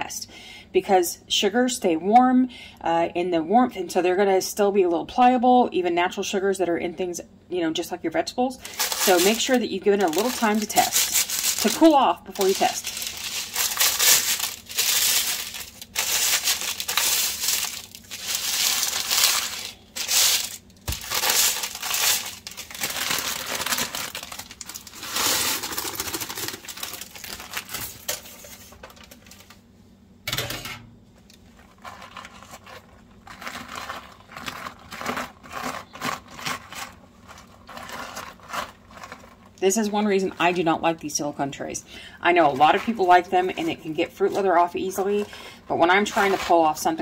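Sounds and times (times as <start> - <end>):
dried vegetable pieces rustling: 8.6 - 29.6, 31.4 - 47.0
parchment paper crinkling: 8.6 - 29.6, 31.4 - 40.9, 42.3 - 47.0.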